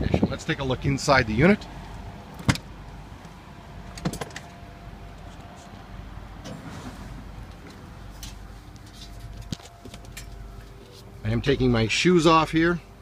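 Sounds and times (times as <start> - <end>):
truck door latch clack: 2.4 - 2.7.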